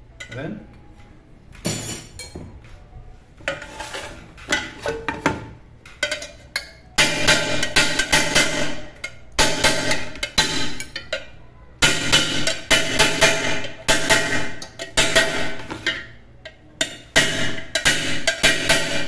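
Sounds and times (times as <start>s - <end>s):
hammer knocking on aluminium pot: 7.0s - 11.2s, 11.8s - 16.1s, 16.8s - 19.0s.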